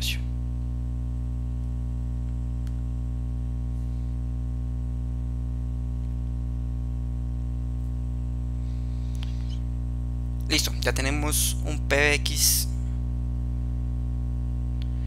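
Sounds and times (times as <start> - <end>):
electrical mains hum: 0.0 - 15.0
faint click: 9.1 - 9.6.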